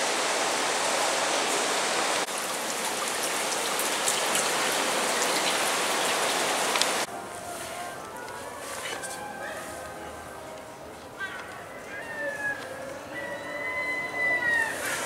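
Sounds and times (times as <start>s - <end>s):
fountain water splashing into basin: 0.0s - 7.1s.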